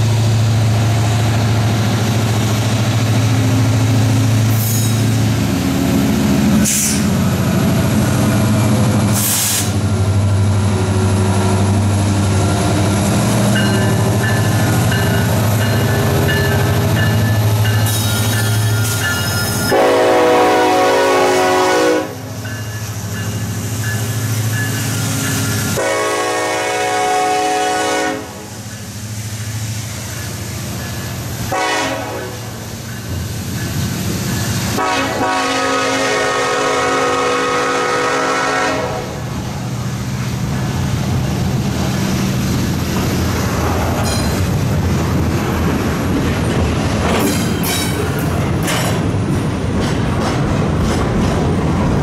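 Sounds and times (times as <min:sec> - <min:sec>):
freight train rumbling past: 0:00.0 - 0:52.0
locomotive air horn blasts: 0:19.6 - 0:22.3, 0:25.7 - 0:28.5, 0:31.5 - 0:32.6, 0:34.7 - 0:39.3.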